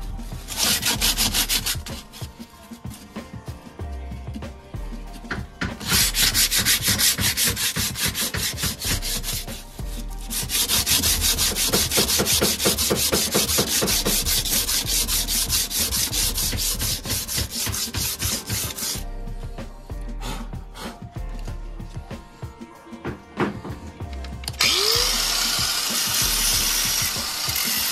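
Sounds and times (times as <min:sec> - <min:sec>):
sandpaper rubbing on metal rim: 0:00.0 - 0:03.2, 0:05.1 - 0:19.1, 0:24.6 - 0:27.9.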